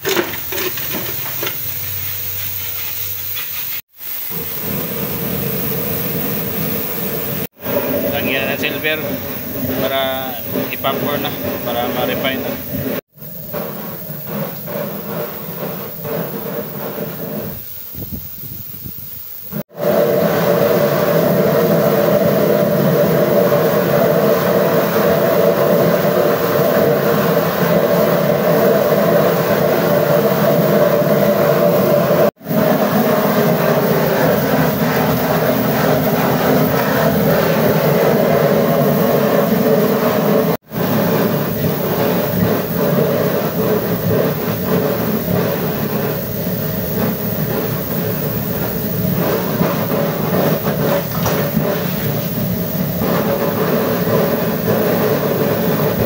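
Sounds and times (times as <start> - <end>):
furnace burner roaring: 0.0 - 56.0.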